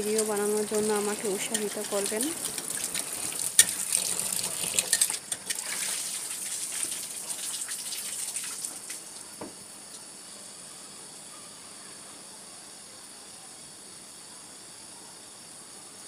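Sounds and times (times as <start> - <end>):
faint steady hiss: 0.0 - 16.0
tap water splashing into bowl: 1.5 - 6.0.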